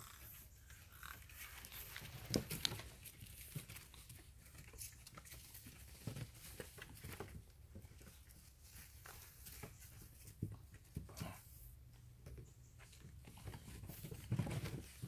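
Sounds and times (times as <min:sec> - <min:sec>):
puppies' paws scraping and knocking: 0:00.8 - 0:11.4, 0:12.2 - 0:15.0.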